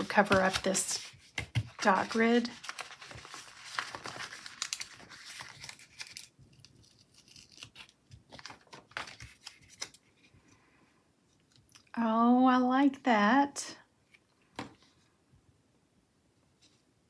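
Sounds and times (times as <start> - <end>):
paper crinkling and tapping: 0.0 - 10.0.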